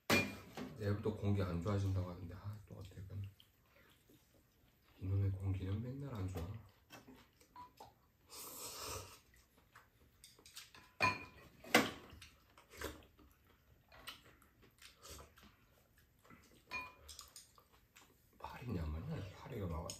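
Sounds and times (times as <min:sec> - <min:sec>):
utensils clinking against bowls: 0:10.3 - 0:11.5, 0:16.7 - 0:17.5.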